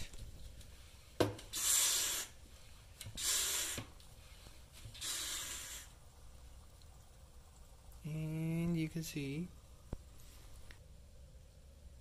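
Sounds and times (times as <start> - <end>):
vacuum brake bleeder hissing: 1.5 - 2.4, 3.1 - 3.9, 5.0 - 6.0.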